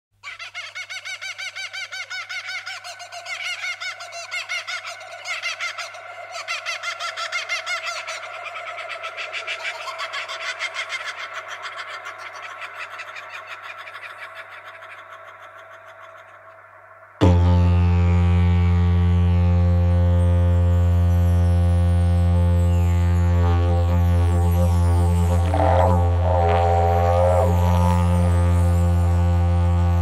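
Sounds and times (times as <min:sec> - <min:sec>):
small birds chirping: 0:00.3 - 0:17.2.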